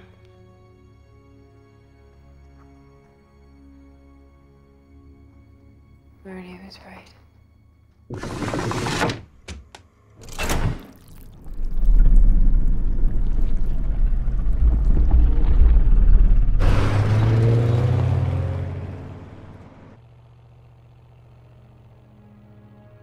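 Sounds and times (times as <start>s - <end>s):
faint low music: 0.0s - 8.1s, 20.0s - 23.0s
deep rumble: 11.4s - 19.7s.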